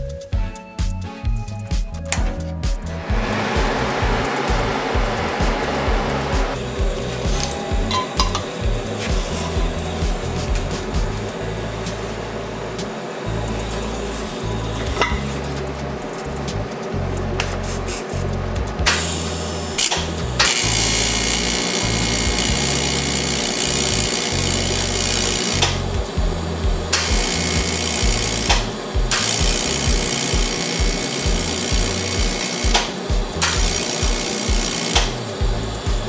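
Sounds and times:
background music with bass line: 0:00.0 - 0:36.0
welding arc buzzing and hissing: 0:02.1 - 0:36.0.

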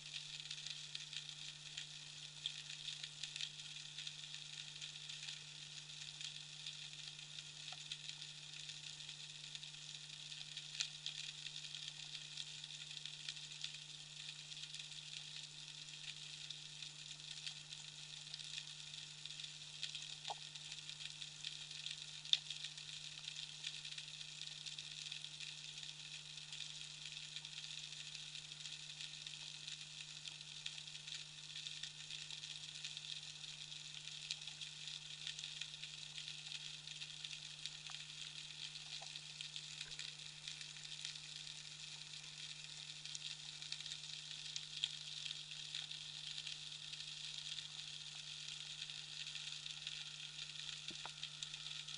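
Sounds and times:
constant low hum: 0:34.2 - 0:51.9
snapping shrimp crackle: 0:50.8 - 0:51.6.

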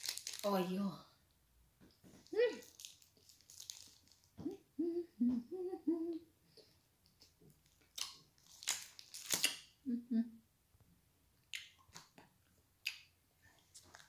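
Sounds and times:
woman humming: 0:04.4 - 0:06.3, 0:09.9 - 0:10.4.

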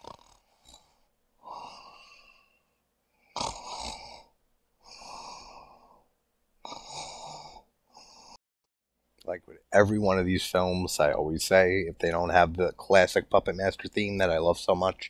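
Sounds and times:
person breathing noisily: 0:00.4 - 0:06.1.

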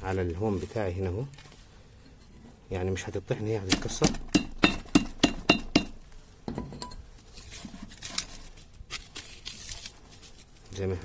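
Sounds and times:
pestle pounding in metal mortar: 0:03.7 - 0:06.9.

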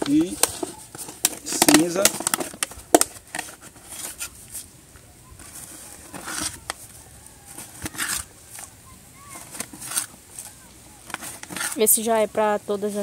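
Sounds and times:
cup scraping ash in bucket: 0:05.4 - 0:06.9, 0:07.5 - 0:08.7, 0:09.4 - 0:12.0.

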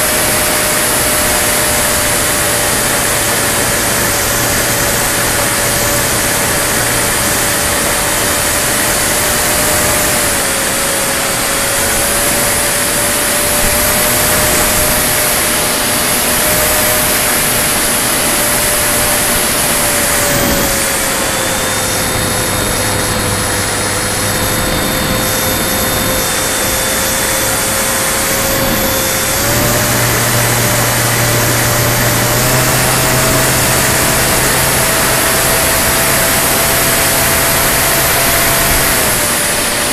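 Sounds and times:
model plane motor and propeller: 0:00.0 - 0:39.9.

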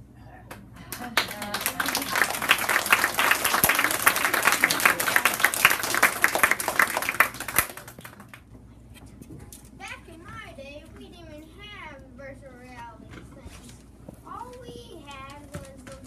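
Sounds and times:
audience applauding: 0:00.9 - 0:08.4.

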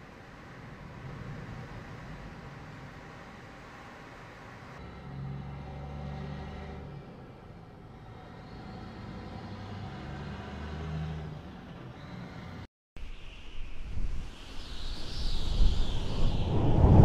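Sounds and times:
cars driving past: 0:04.8 - 0:12.7.

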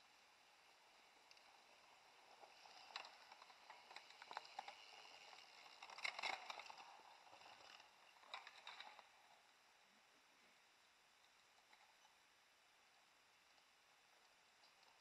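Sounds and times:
bike tyres rushing over dirt: 0:00.4 - 0:09.2
clicks and crackles: 0:01.2 - 0:09.4, 0:13.5 - 0:15.0.

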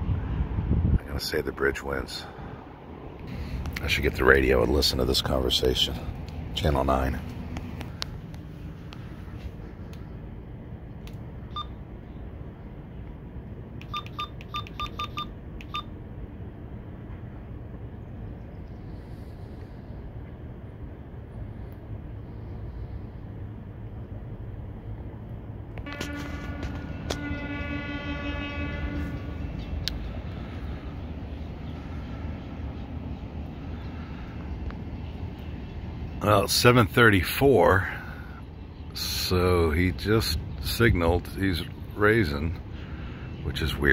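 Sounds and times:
steady low rumble: 0:00.0 - 0:43.9
radio keypad beeps: 0:11.5 - 0:11.8, 0:13.8 - 0:15.9
long horn blast: 0:25.8 - 0:30.9.

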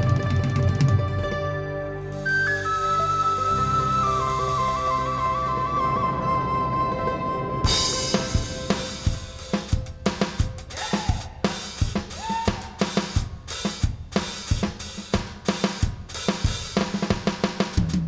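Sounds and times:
short rising notes: 0:00.0 - 0:10.8
live band playing: 0:00.0 - 0:16.8
drum kit beat: 0:07.6 - 0:18.0.

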